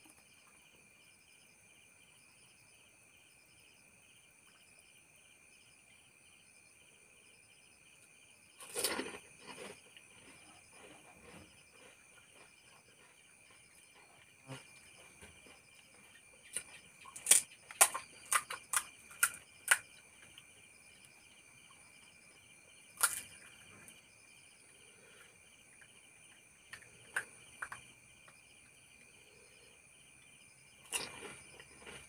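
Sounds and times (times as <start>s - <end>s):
crickets chirping: 0.0s - 32.0s
crisp snacks cracking and crunching: 16.5s - 19.8s, 23.0s - 23.5s.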